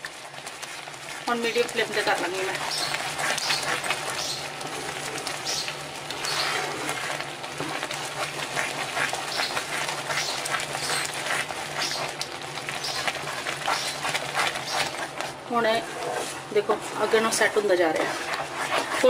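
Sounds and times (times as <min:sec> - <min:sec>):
thick mixture bubbling: 0:00.0 - 0:19.0
wooden spatula scraping: 0:00.0 - 0:19.0.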